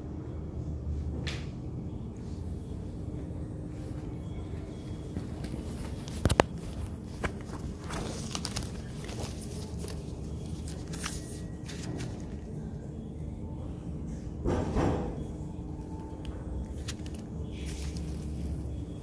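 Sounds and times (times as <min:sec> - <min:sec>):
paper rustling: 0:05.3 - 0:12.6, 0:16.7 - 0:18.6.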